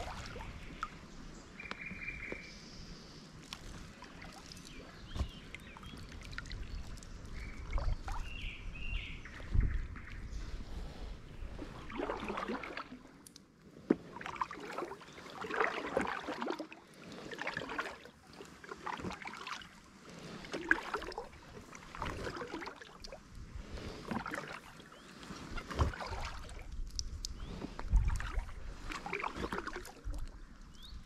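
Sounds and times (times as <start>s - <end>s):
paddle strokes splashing in water: 0.0s - 1.0s, 2.1s - 8.4s, 9.3s - 31.0s.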